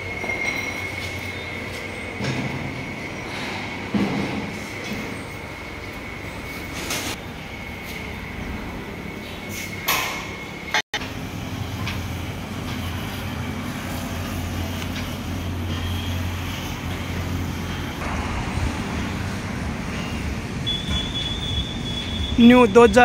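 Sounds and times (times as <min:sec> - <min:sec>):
low hum of engines and traffic: 0:00.0 - 0:23.0.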